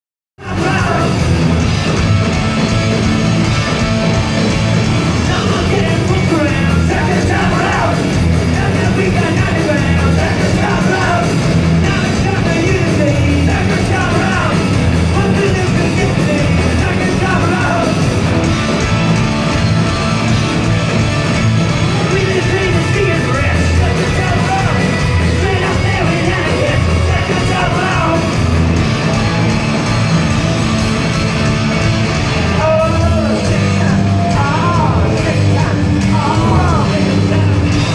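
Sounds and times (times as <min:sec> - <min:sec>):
punk rock band playing live: 0:00.4 - 0:37.9
lead singer singing: 0:05.2 - 0:18.1, 0:22.0 - 0:28.4.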